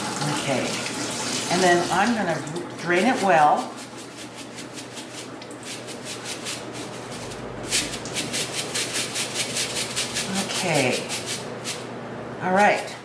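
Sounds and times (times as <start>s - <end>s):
rice shaken in a mesh strainer: 3.2s - 11.9s.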